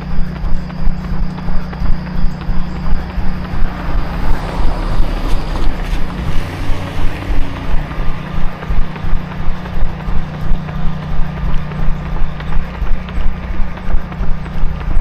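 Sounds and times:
running footfalls: 0.0 - 15.0
steady low hum: 0.0 - 15.0
wind rumbling on microphone: 2.6 - 10.2.

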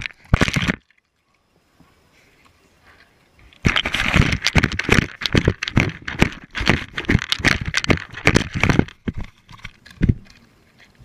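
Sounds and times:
dog crunching food from bowl: 3.6 - 10.4.

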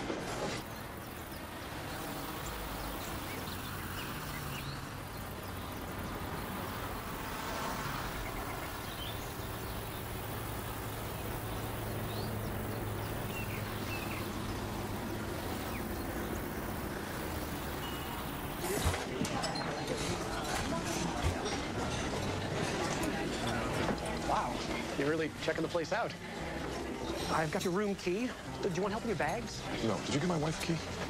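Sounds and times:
distant traffic hum: 0.0 - 31.0
faint chirps: 8.2 - 19.0.

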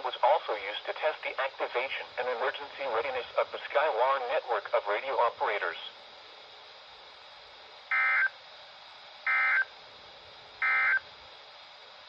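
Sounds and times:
buzzing data tones from radio speaker: 7.9 - 8.4, 9.3 - 9.7, 10.6 - 11.1.

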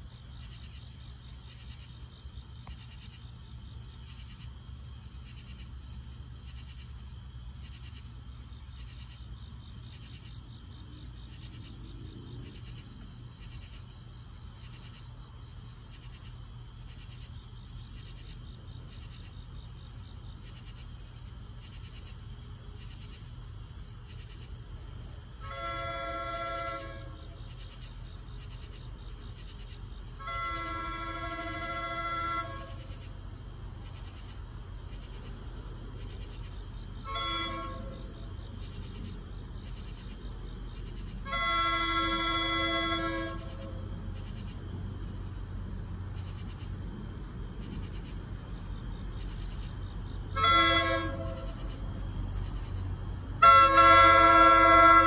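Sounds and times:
crickets chirping: 0.0 - 55.0
train horn blast: 25.4 - 27.4, 30.2 - 32.9, 37.0 - 38.1, 41.2 - 43.8, 50.4 - 51.6, 53.4 - 55.0.

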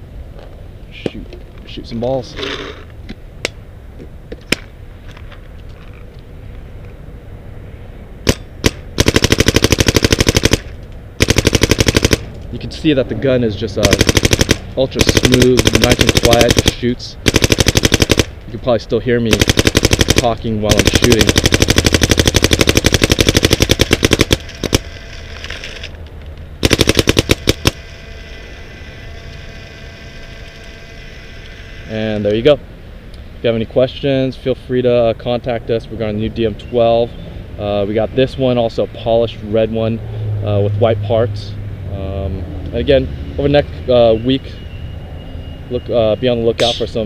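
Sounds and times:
paintball marker firing: 13.8 - 18.4, 19.3 - 24.9.

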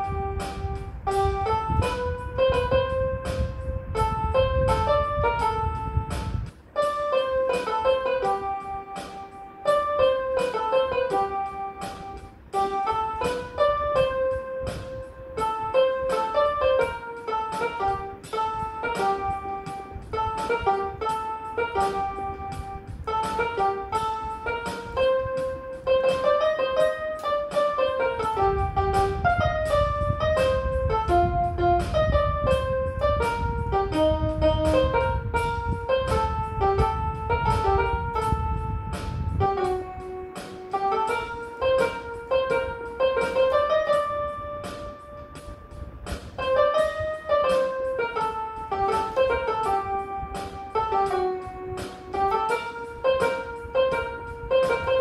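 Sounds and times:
electronic keyboard piano melody: 0.0 - 55.0.

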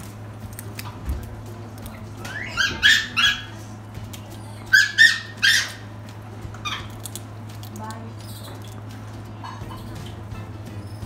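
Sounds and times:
monkeys giving high-pitched calls: 2.2 - 3.7, 4.3 - 6.0, 6.6 - 7.2.

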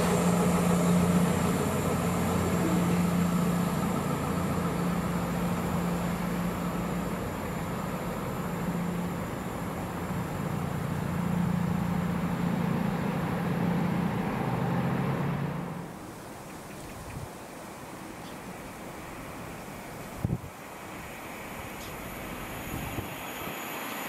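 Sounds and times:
train rumbling with low hum: 0.0 - 24.0.

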